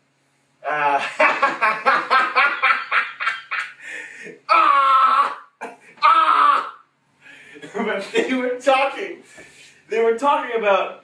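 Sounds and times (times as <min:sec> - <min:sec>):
man laughing: 0:00.7 - 0:06.6
high drawn-out cry: 0:04.4 - 0:06.9.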